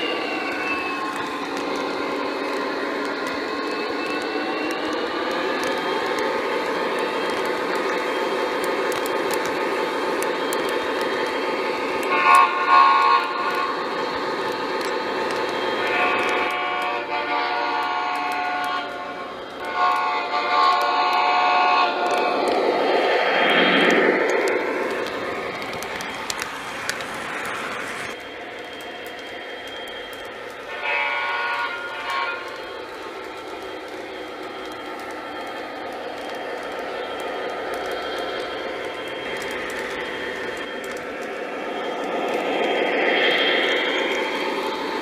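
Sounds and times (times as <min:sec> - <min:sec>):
model train running on track: 0:00.0 - 0:45.0
diesel horn blasts: 0:15.8 - 0:22.0, 0:30.7 - 0:32.5.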